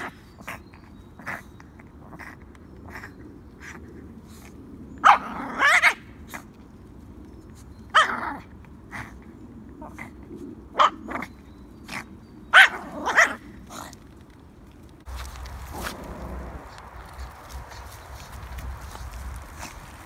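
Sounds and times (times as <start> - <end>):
small dog yapping: 5.0 - 6.1, 12.5 - 13.4.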